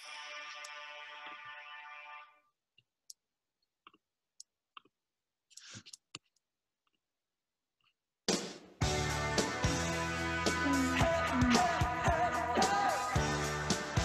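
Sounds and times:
music: 0.0 - 2.4, 8.3 - 14.0
computer mouse clicks: 5.5 - 7.0
loud song: 10.0 - 14.0.

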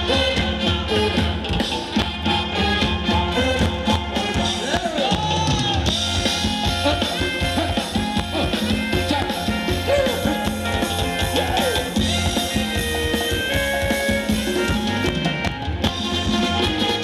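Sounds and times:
drum kit dance beat: 4.2 - 17.0.

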